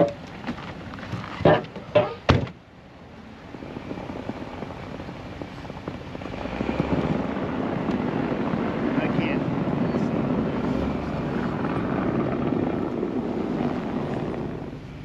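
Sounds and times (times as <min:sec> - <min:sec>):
truck engine running: 0:00.0 - 0:15.0
truck door shutting: 0:01.4 - 0:02.6.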